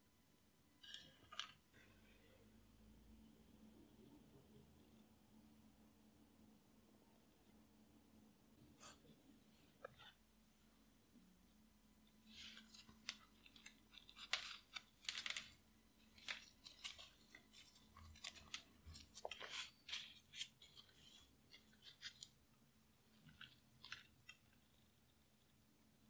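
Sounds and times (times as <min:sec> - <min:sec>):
paper muffin liner crinkling: 0:12.2 - 0:22.4.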